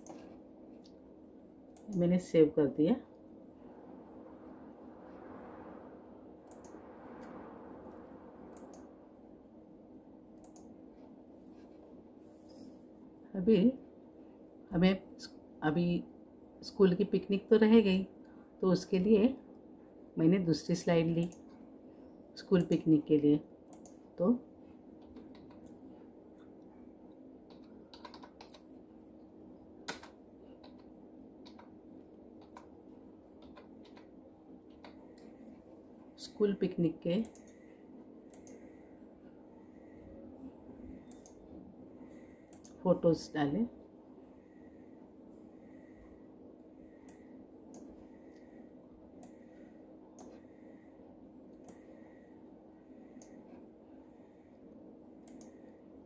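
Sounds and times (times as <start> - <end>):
computer mouse clicks: 0.0 - 1.0, 1.8 - 2.0, 6.4 - 7.4, 8.5 - 8.9, 10.4 - 10.7, 23.7 - 24.0, 25.0 - 25.8, 27.5 - 28.7, 29.9 - 31.8, 32.4 - 32.7, 33.4 - 34.1, 38.3 - 38.6, 41.0 - 41.4, 42.5 - 42.8, 49.2 - 49.4, 50.2 - 50.4, 51.5 - 51.9, 53.1 - 53.4, 55.2 - 55.7
faint steady hum: 0.0 - 56.0
computer keyboard key clicks: 27.5 - 28.6.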